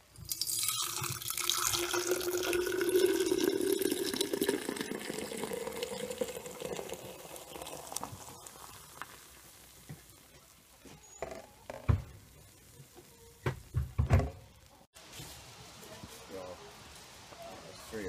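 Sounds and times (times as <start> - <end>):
milk pouring into a glass jar: 0.2 - 9.7.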